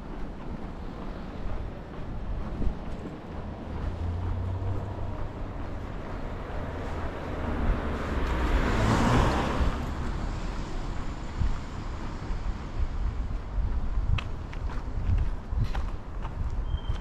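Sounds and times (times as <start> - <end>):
car passing: 0.0 - 13.7
low traffic rumble: 0.0 - 17.0.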